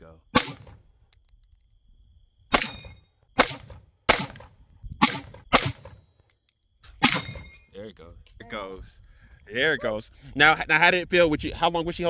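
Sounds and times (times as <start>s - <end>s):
rifle shots: 0.3s - 0.8s, 2.5s - 6.0s, 7.0s - 7.5s.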